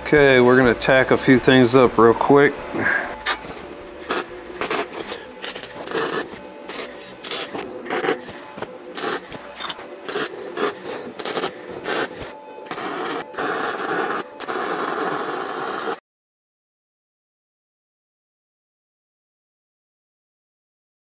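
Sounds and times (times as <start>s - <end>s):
welding arc crackling: 10.1s - 16.0s.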